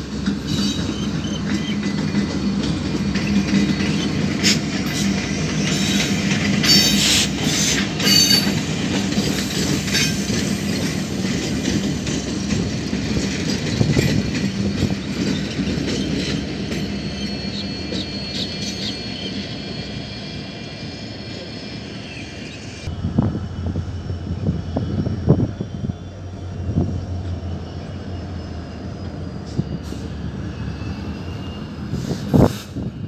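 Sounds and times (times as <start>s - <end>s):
wheels clicking over rail joints: 0.0s - 17.2s
diesel locomotive engines droning: 0.0s - 33.0s
high wheel squeal: 0.4s - 2.2s, 3.1s - 11.3s, 13.6s - 33.0s.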